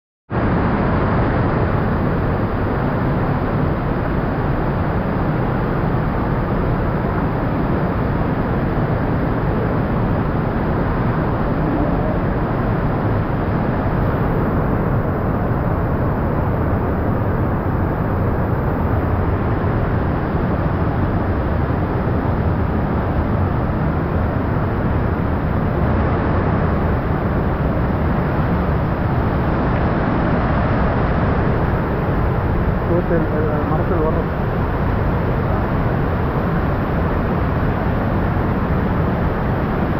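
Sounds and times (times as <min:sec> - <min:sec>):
waterfall rushing: 0:00.4 - 0:39.9.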